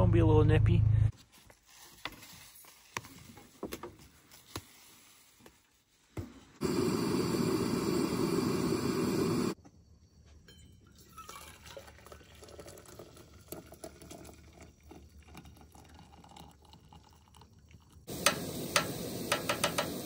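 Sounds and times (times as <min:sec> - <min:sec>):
gas stove burner hissing: 0:06.6 - 0:09.6, 0:18.1 - 0:20.0
coffee pouring into metal mug: 0:10.8 - 0:19.9.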